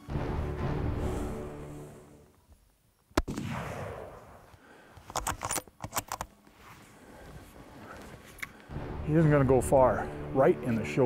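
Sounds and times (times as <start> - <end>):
rifle shot echoing: 3.2 - 4.5
rifle bolt clicks: 5.0 - 6.3.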